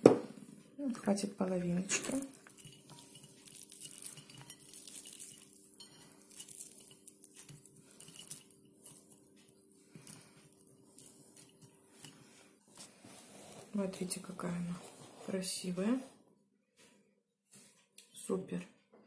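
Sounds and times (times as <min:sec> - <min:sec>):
onion scraped on cutting board: 0:12.8 - 0:14.0, 0:14.6 - 0:16.1.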